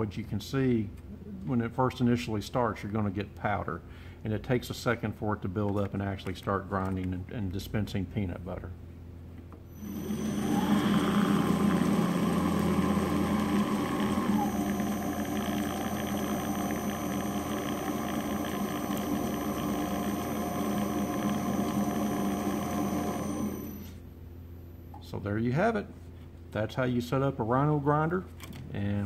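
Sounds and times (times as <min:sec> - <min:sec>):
grinder electric motor running: 0:09.8 - 0:24.0.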